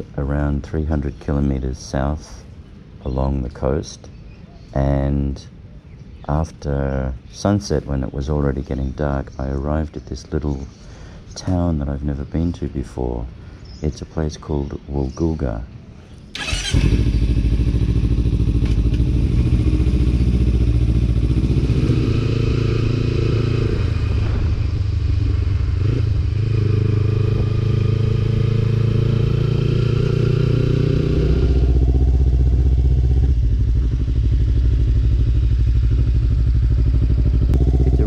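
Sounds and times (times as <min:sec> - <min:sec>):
motorcycle engine running: 0:16.4 - 0:38.0.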